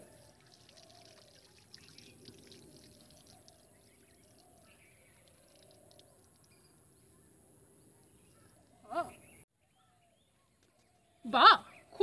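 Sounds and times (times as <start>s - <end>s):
water pouring onto concrete: 0.0s - 6.6s
small water splashes: 0.0s - 6.7s.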